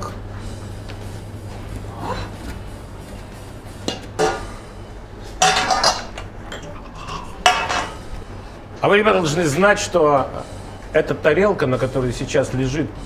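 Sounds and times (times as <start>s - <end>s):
frying pan and plate clinking: 5.4s - 8.0s.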